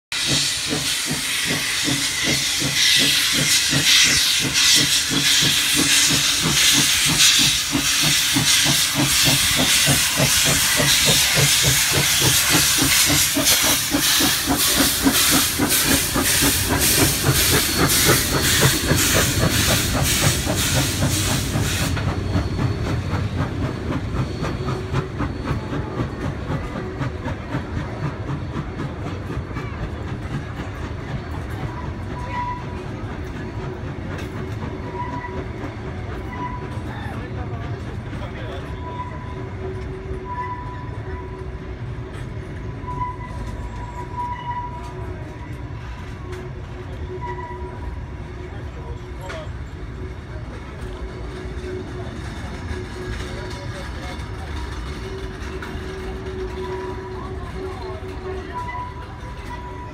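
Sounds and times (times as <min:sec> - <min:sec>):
loud hiss of steam: 0:00.1 - 0:29.5
steam locomotive chuffing: 0:00.1 - 0:59.9
carriages rolling past: 0:41.2 - 0:59.9.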